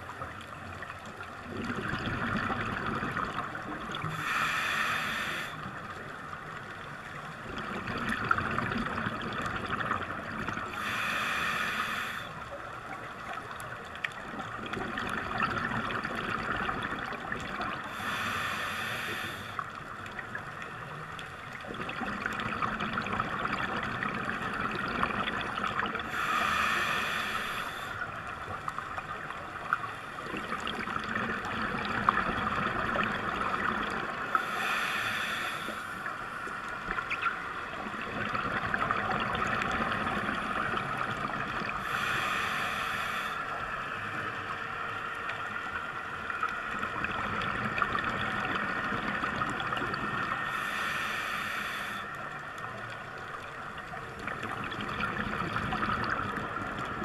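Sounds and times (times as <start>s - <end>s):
hissing regulator inhalations: 4.0s - 5.7s, 10.7s - 12.4s, 17.8s - 19.6s, 26.0s - 28.2s, 34.3s - 36.5s, 41.8s - 43.8s, 50.4s - 52.3s.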